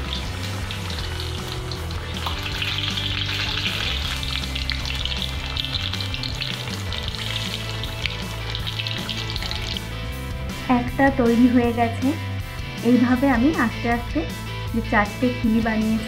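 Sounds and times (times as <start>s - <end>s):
food deep-frying in hot oil: 0.0s - 10.4s.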